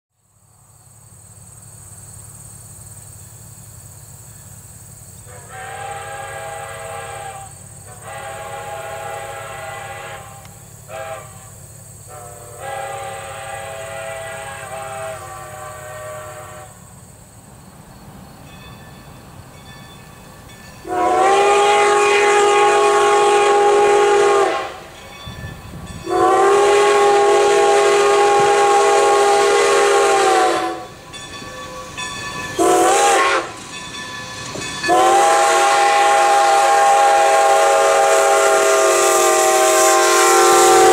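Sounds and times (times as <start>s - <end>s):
low rumble of train: 0.1s - 40.9s
steam locomotive whistle: 5.2s - 17.0s, 20.8s - 40.9s.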